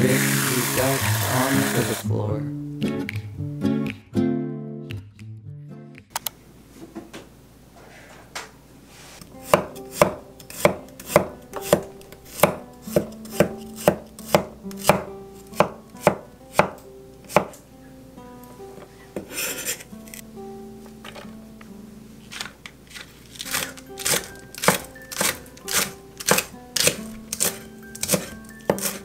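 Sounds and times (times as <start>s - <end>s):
knife chopping on wooden board: 9.4s - 17.6s, 23.5s - 29.0s
knife blade scraping board: 19.2s - 19.9s, 22.3s - 29.0s.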